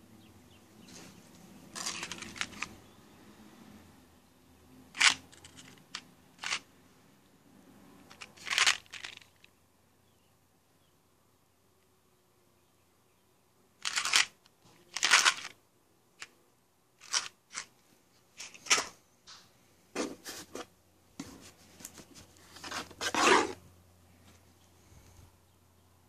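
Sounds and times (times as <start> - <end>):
cardboard and packaging rustling: 0.9 - 2.8, 8.1 - 9.5, 20.0 - 23.6.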